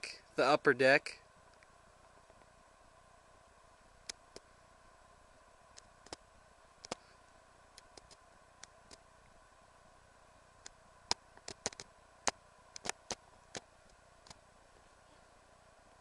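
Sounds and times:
faint steady hum: 0:00.0 - 0:16.0
light irregular ticks: 0:01.5 - 0:02.5, 0:04.0 - 0:04.5, 0:05.7 - 0:09.1, 0:10.6 - 0:14.5.

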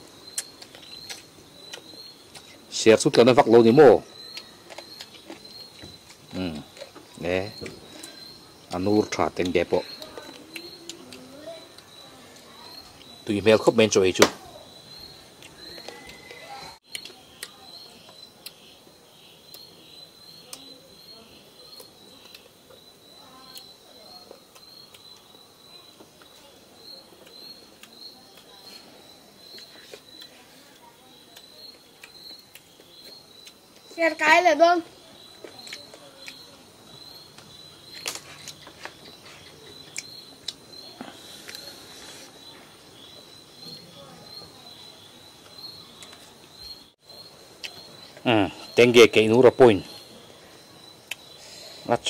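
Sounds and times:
night insects trilling: 0:00.0 - 0:52.0
sharp eating clicks: 0:00.2 - 0:02.6, 0:04.2 - 0:08.2, 0:09.3 - 0:12.0, 0:15.4 - 0:18.6, 0:21.7 - 0:22.8, 0:23.5 - 0:25.3, 0:26.2 - 0:28.7, 0:29.4 - 0:34.0, 0:35.3 - 0:41.8, 0:51.0 - 0:51.4
chewing and lip-smacking: 0:04.3 - 0:07.0, 0:10.0 - 0:12.0.

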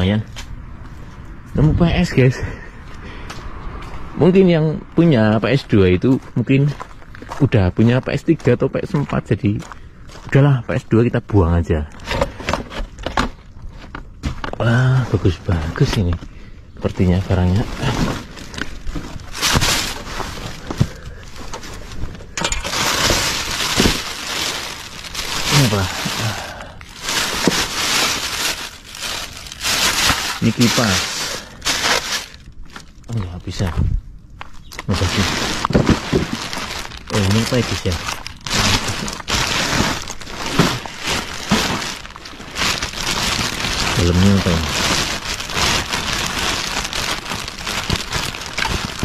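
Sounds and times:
plastic bag and cardboard rustling: 0:11.8 - 0:49.0.

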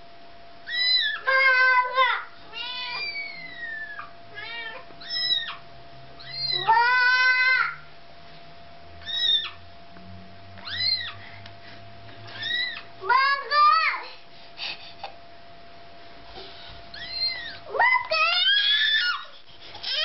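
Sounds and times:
cats meowing: 0:00.7 - 0:07.8, 0:09.0 - 0:09.6, 0:10.6 - 0:11.2, 0:12.3 - 0:12.9, 0:16.9 - 0:20.0.

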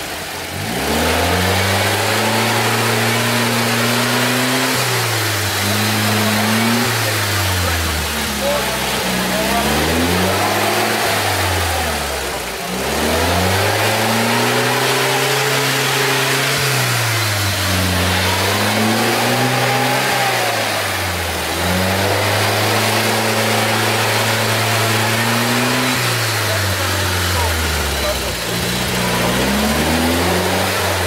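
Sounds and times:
engine revving hard: 0:00.0 - 0:31.0
tyres churning through mud: 0:00.0 - 0:31.0.

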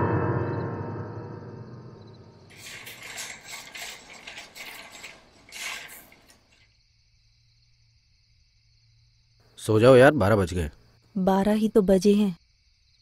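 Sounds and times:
gong ringing: 0:00.0 - 0:02.4
rattling clicks: 0:02.5 - 0:06.6.

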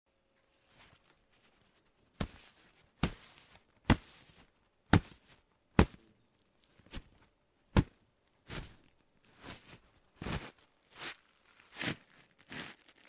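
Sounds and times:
soft sheet being struck: 0:02.2 - 0:06.0.

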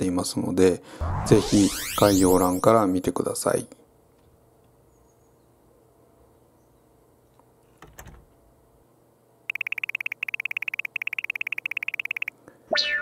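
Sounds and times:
rapid high electronic beeps: 0:01.0 - 0:02.7, 0:09.5 - 0:12.3.

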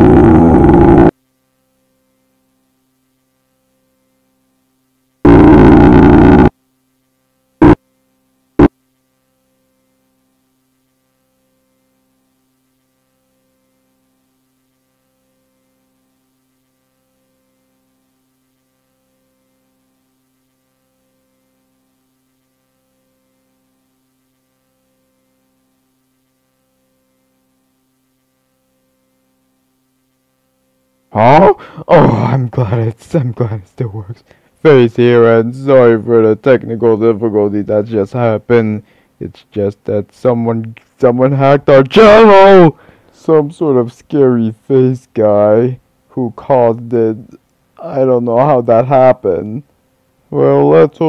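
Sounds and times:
harsh distorted noise blasts: 0:00.0 - 0:01.1, 0:05.3 - 0:06.5
faint low hum: 0:00.0 - 0:51.0.

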